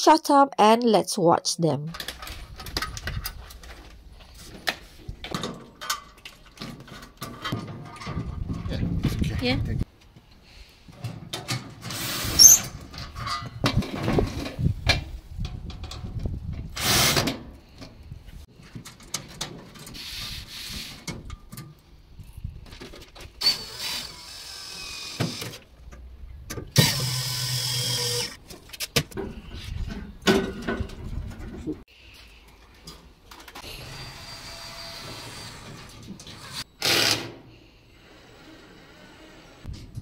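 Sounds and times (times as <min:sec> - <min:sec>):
power drill driving screws: 0:11.9 - 0:12.7, 0:16.8 - 0:17.3, 0:23.4 - 0:25.6, 0:26.8 - 0:28.4, 0:33.6 - 0:37.4.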